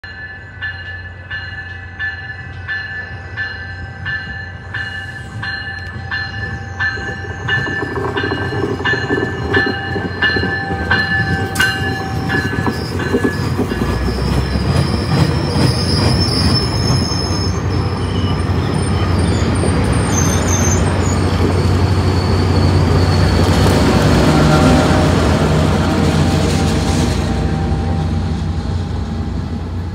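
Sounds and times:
warning bell ringing: 0:00.0 - 0:14.3
diesel locomotive passing: 0:00.0 - 0:29.9
train cars rumbling on rails: 0:00.0 - 0:29.9.

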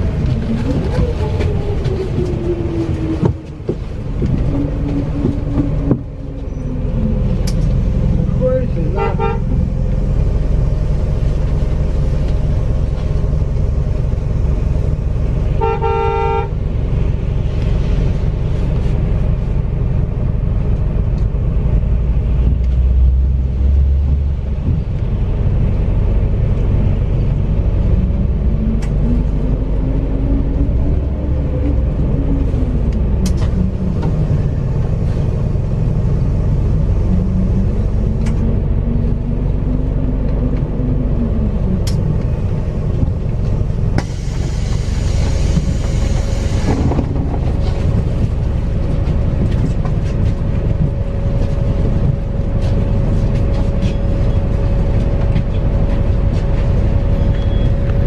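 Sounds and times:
bus engine and road rumble: 0:00.0 - 0:58.0
horn toot: 0:15.6 - 0:16.5.

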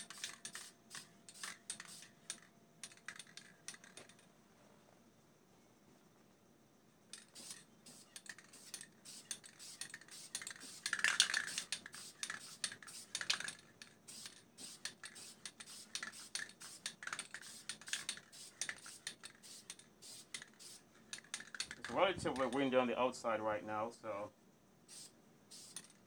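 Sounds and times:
spray can rattling: 0:00.0 - 0:04.2, 0:07.2 - 0:22.6, 0:24.9 - 0:26.0.

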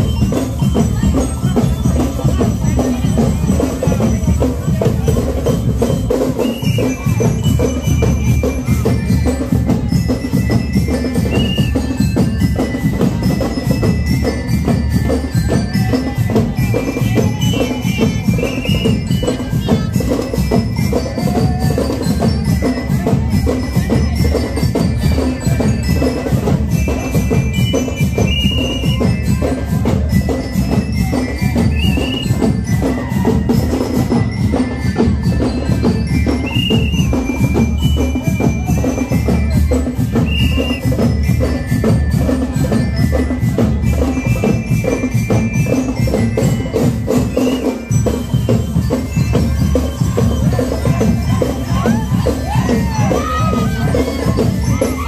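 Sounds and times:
bright bell notes: 0:00.0 - 0:55.0
marching band drum beat: 0:00.0 - 0:55.0.

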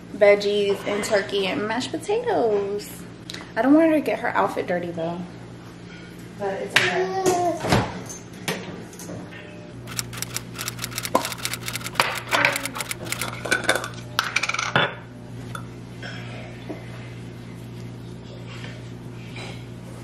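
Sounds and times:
plastic containers clicking on stone: 0:09.9 - 0:13.4.

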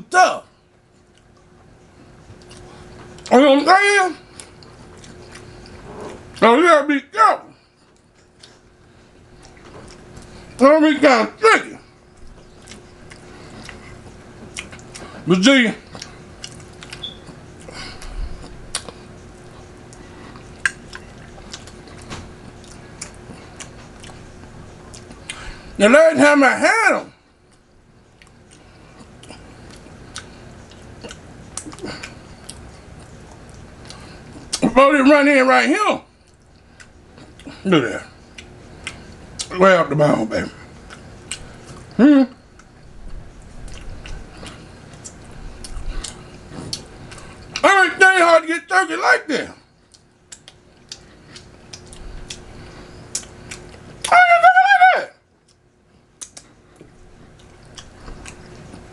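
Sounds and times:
faint steady hum: 0:00.0 - 0:58.9
person chewing meat: 0:00.9 - 0:03.3, 0:04.2 - 0:06.4, 0:07.6 - 0:10.6, 0:11.8 - 0:15.2, 0:15.8 - 0:25.8, 0:27.2 - 0:34.7, 0:36.1 - 0:39.5, 0:40.6 - 0:47.6, 0:49.7 - 0:54.1, 0:55.4 - 0:58.9
man humming: 0:42.0 - 0:42.4
wet mouth clicks: 0:49.9 - 0:52.4, 0:56.2 - 0:56.5.

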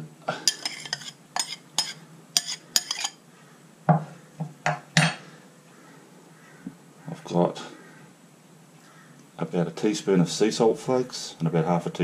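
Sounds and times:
metal spoon clinking on ceramic bowl: 0:00.5 - 0:03.2.

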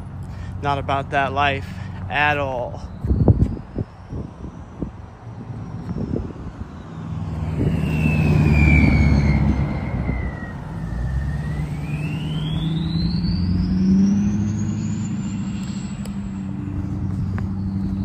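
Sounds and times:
vehicle engine passing: 0:00.0 - 0:18.0
high whine: 0:00.7 - 0:18.0.

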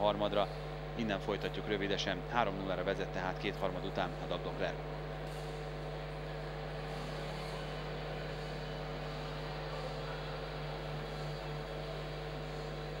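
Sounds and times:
electrical mains hum: 0:00.0 - 0:13.0
ice arena background noise: 0:03.6 - 0:13.0.

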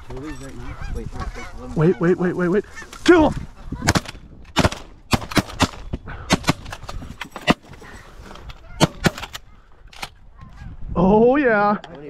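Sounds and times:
shotgun shots: 0:03.8 - 0:07.6.

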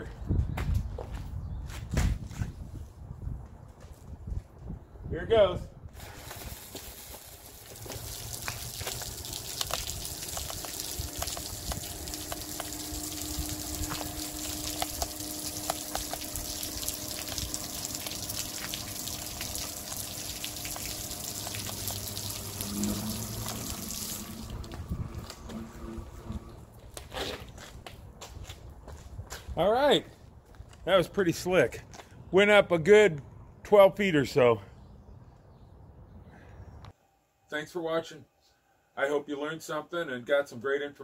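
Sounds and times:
water jets spraying: 0:06.0 - 0:27.8
water drops hitting pavement: 0:06.2 - 0:27.1.

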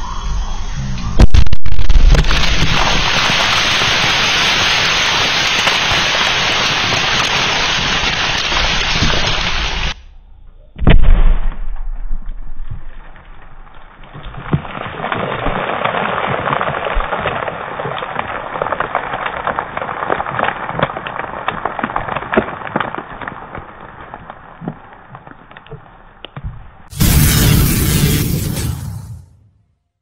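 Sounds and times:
loud explosion blast: 0:01.2 - 0:05.3, 0:10.8 - 0:13.0, 0:26.9 - 0:29.5
low rumble: 0:09.9 - 0:14.4
crackling hiss with small pops: 0:16.2 - 0:26.7.

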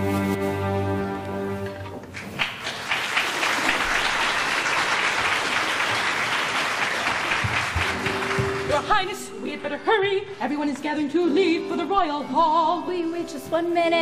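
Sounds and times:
audience applauding: 0:02.0 - 0:09.1.

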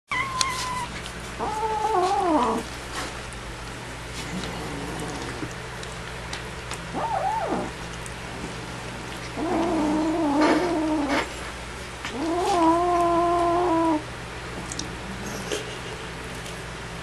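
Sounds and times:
kitten crying: 0:00.1 - 0:02.6, 0:06.9 - 0:07.7, 0:12.2 - 0:14.0
kitten growling: 0:00.1 - 0:02.7, 0:04.2 - 0:05.6, 0:06.9 - 0:07.8, 0:09.3 - 0:11.3, 0:12.1 - 0:15.7.

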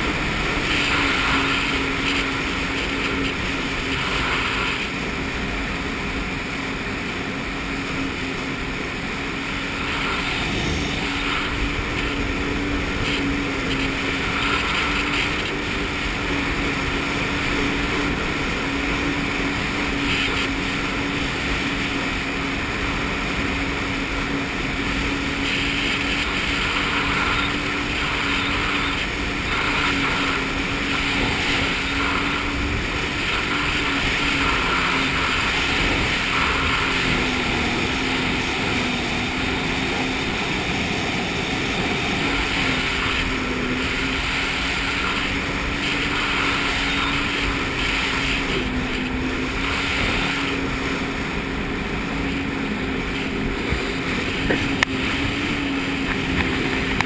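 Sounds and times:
jet ski engine running: 0:00.0 - 0:57.0
rush of wind and water: 0:00.0 - 0:57.0.

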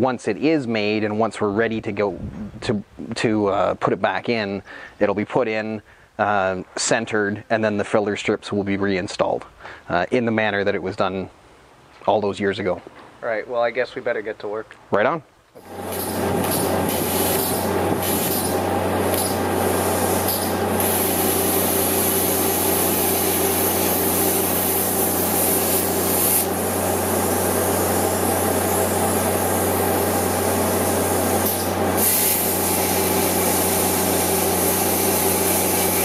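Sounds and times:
low hum: 0:15.6 - 0:32.1
plasma cutter hiss and buzz: 0:15.6 - 0:36.0.

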